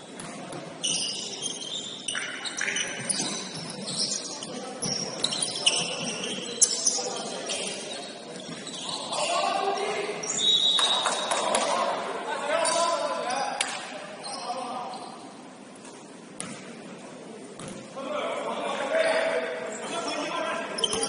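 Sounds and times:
shoes squeaking on hardwood court: 0.0s - 11.4s, 19.2s - 21.0s.

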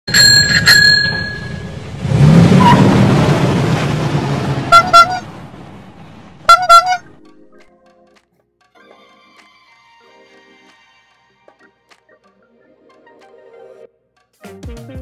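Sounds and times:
ringing tone: 0.1s - 1.7s
cartoon vehicle engine running: 0.1s - 3.4s, 4.5s - 5.3s
double horn toot: 2.5s - 3.0s, 4.6s - 5.4s, 6.5s - 7.1s.

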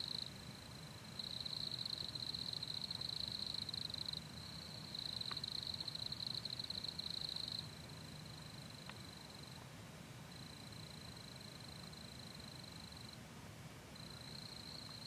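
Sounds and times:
insects trilling: 0.0s - 9.6s, 14.0s - 15.0s.

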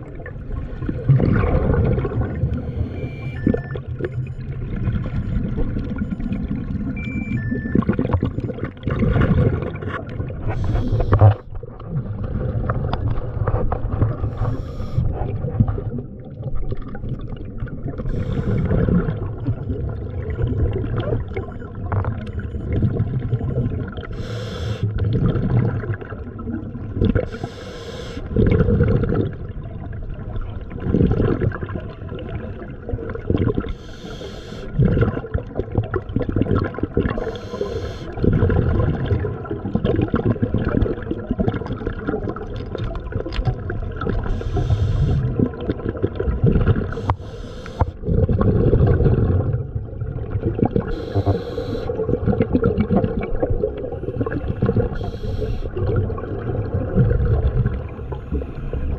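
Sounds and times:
muffled underwater water sound: 0.0s - 58.9s
hissing bubbles: 7.7s - 12.8s, 14.1s - 21.4s, 30.8s - 58.9s.

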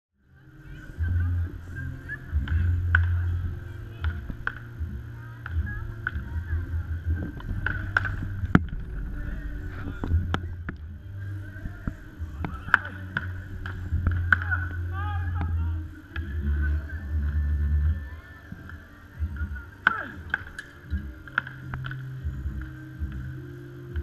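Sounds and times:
steady low rumble: 0.2s - 24.0s
paddles striking ball: 7.1s - 10.9s, 11.6s - 17.3s.

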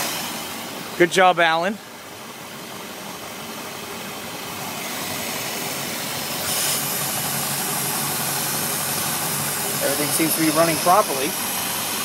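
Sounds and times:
boat engine running: 4.6s - 12.0s.

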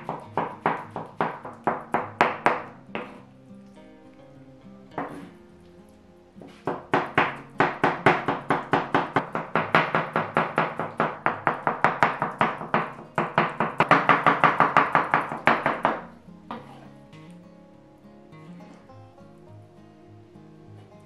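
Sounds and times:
knife chopping on wooden board: 0.0s - 3.2s, 5.0s - 5.3s, 6.4s - 16.8s
quiet background music: 0.0s - 21.0s.

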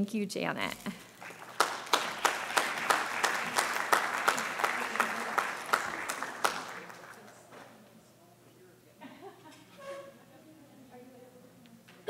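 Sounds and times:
audience applauding: 1.0s - 7.8s
nearby person clapping: 1.0s - 7.8s.

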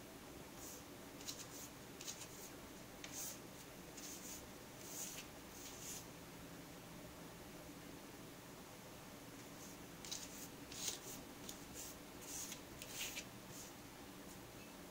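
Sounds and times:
cat paws scratching desk mat: 0.6s - 3.4s, 4.0s - 6.1s, 9.6s - 13.7s.

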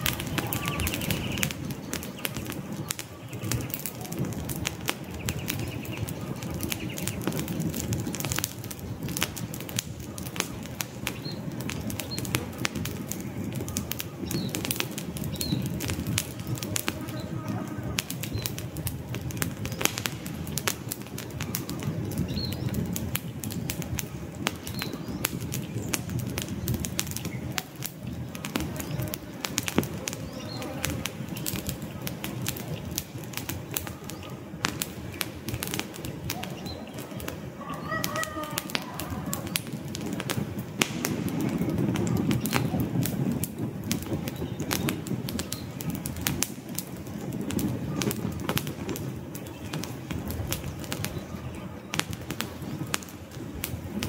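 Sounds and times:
campfire crackling and popping: 0.0s - 54.0s
bird chirps: 0.1s - 3.8s.

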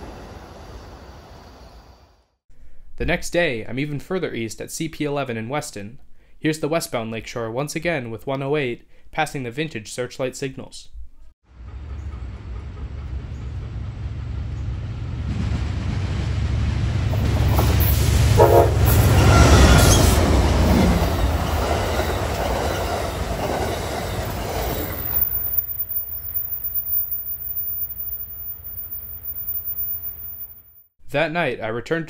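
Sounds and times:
passenger train passing: 0.0s - 2.2s, 11.5s - 30.6s.

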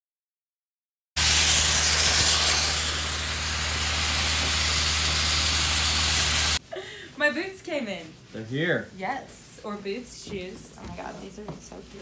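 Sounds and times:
sandblaster hissing: 1.2s - 6.6s.

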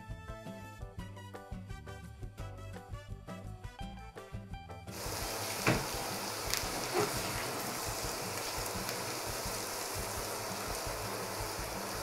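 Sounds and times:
onion sizzling in oil: 4.9s - 12.0s
spatula scraping a pan: 6.8s - 7.5s.

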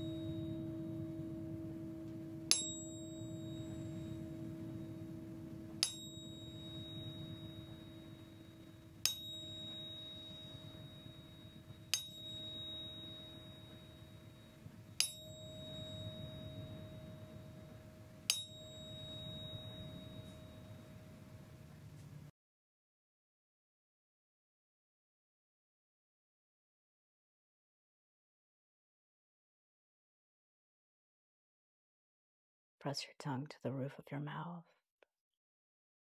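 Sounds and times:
bright metallic ring: 0.0s - 22.0s
steady sustained hum: 0.0s - 22.3s.

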